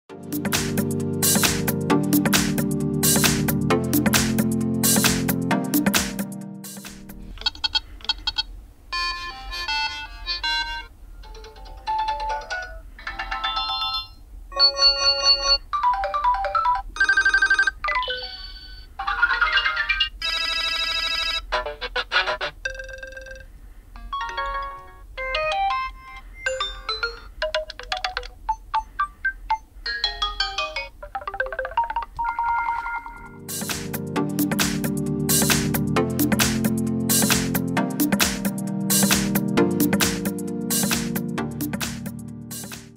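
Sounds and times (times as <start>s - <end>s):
electronic ringtone melodies: 9.0s - 21.5s, 24.0s - 34.6s.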